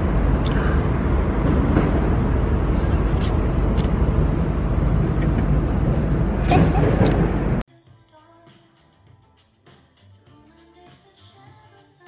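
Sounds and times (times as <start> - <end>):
city street traffic rumble: 0.0 - 7.6.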